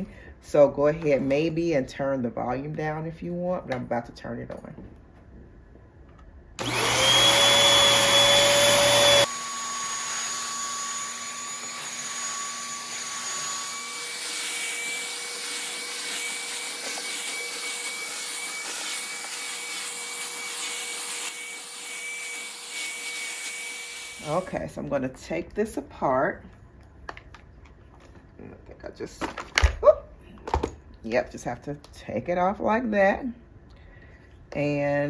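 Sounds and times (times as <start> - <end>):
stick vacuum motor whining: 6.6 - 24.5.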